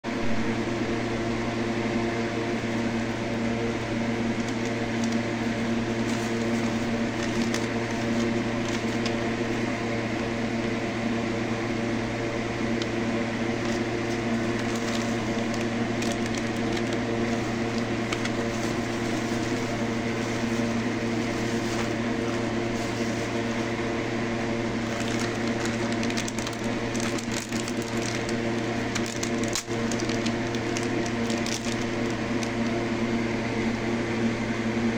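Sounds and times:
steady electrical hum: 0.1s - 34.9s
plastic and foil wrappers crinkling: 4.3s - 9.5s, 12.7s - 23.8s, 24.6s - 32.8s.

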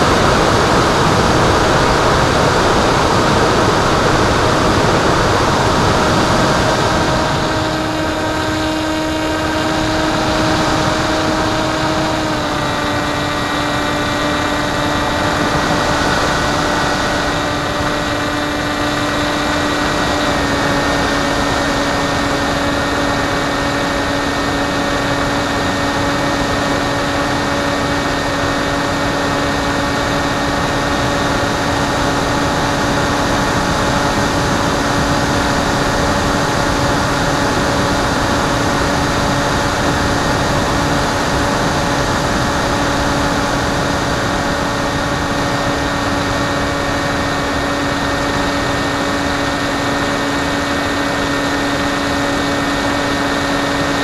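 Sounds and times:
electric motor and propeller whine: 0.0s - 54.0s
wind rushing on microphone: 0.0s - 54.0s.

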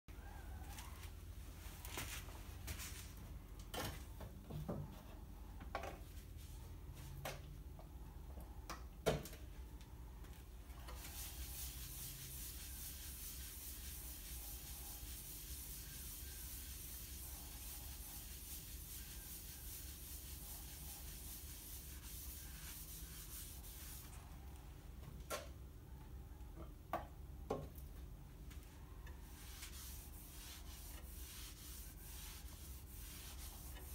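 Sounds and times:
rag rubbing wooden bowl: 11.0s - 24.1s, 29.4s - 33.9s.

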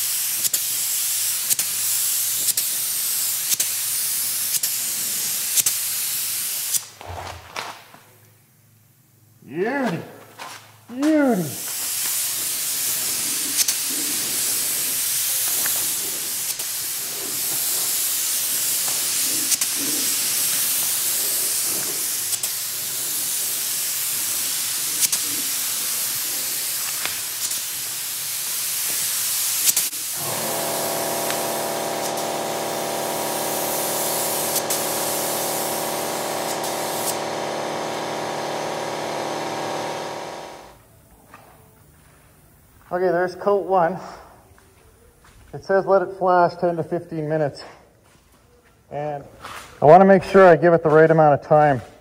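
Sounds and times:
spray gun hissing: 0.0s - 6.8s, 11.4s - 40.8s
multi-tone machine drone: 30.2s - 40.8s.

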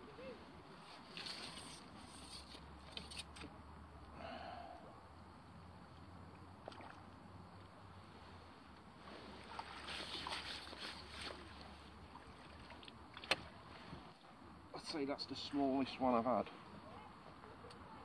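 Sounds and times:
water splashing and dripping: 9.4s - 13.6s.

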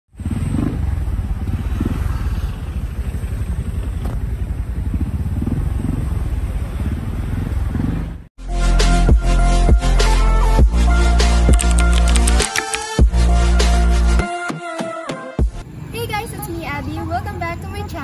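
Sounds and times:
upbeat electronic pop music: 8.4s - 15.6s.

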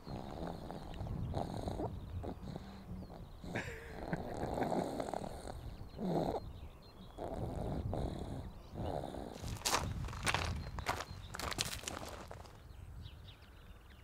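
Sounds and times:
baby snoring softly: 0.0s - 9.5s.

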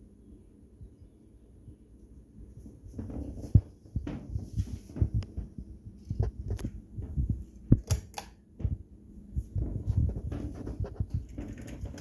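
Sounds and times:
handling knocks and thumps: 2.9s - 5.6s.

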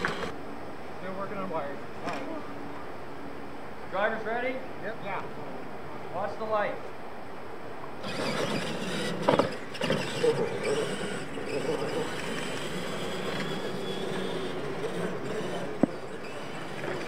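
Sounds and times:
electric motor and gear whine: 0.0s - 0.6s, 8.0s - 17.0s.

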